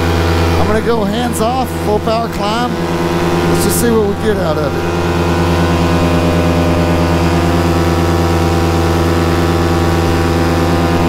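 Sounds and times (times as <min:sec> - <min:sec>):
paramotor engine drone: 0:00.0 - 0:11.0.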